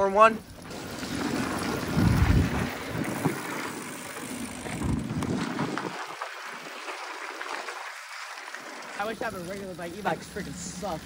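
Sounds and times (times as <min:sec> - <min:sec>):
tyre noise on dirt trail: 0:00.0 - 0:11.0
bike knocking over bumps: 0:00.6 - 0:09.2
wind rushing over microphone: 0:00.7 - 0:06.2.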